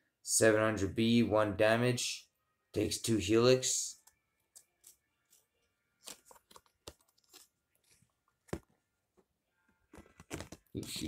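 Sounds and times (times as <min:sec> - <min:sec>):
trading cards rustling: 0:04.1 - 0:08.8, 0:09.9 - 0:11.0.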